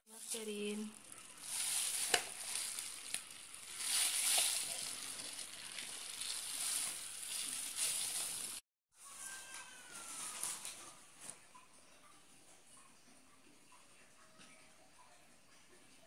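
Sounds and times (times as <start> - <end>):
spoon squelching dough: 0.6 - 8.6.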